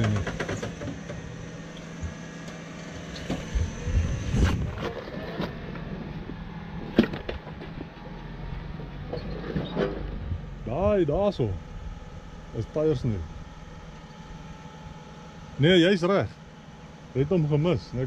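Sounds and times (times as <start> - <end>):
car engine running at low revs: 0.0 - 18.0
low thumps: 8.8 - 12.6.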